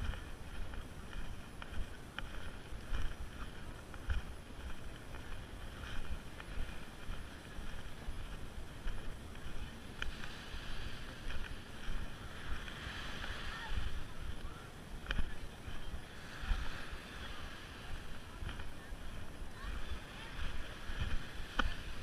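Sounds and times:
wind buffeting microphone: 0:00.0 - 0:22.0
light ticks: 0:01.1 - 0:05.4, 0:08.8 - 0:10.4.

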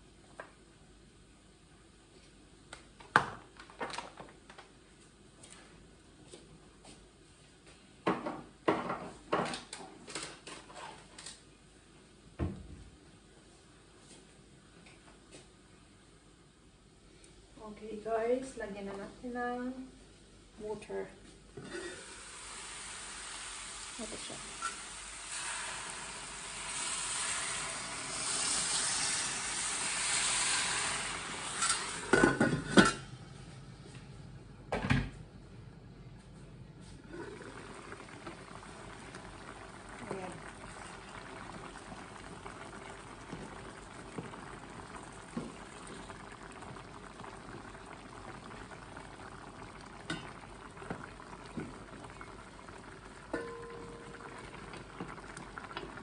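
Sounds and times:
chicken sizzling in pan: 0:21.6 - 0:32.3
water pouring into hot pan: 0:21.9 - 0:32.2, 0:37.1 - 0:56.0.

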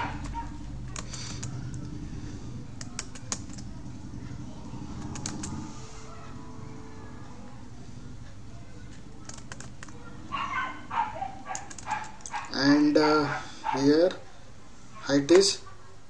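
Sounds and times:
steady low hum: 0:00.0 - 0:15.0
computer keyboard key presses: 0:00.9 - 0:01.8, 0:02.8 - 0:03.6, 0:05.0 - 0:05.6, 0:09.2 - 0:10.0, 0:11.5 - 0:12.4.

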